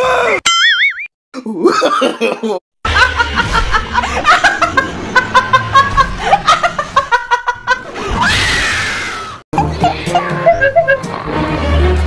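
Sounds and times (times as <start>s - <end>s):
bursts of laughter: 1.6s - 8.2s.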